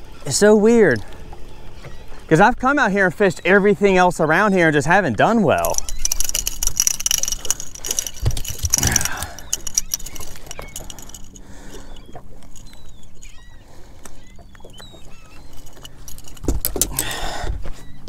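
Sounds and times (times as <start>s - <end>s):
rattling and clicking of tackle: 4.7s - 13.4s, 14.0s - 18.0s.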